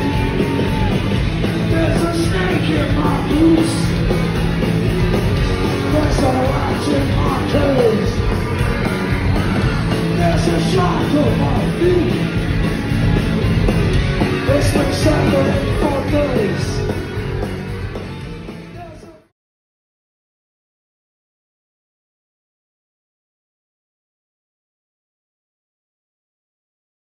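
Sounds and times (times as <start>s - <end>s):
punk rock band playing: 0.0s - 19.3s.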